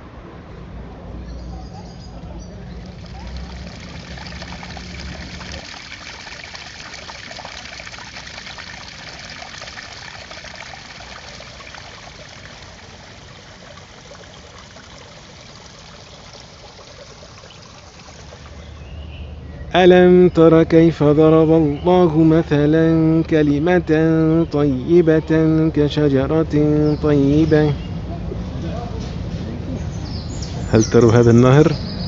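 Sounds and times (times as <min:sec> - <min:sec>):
water trickling over rocks: 0:02.6 - 0:19.1.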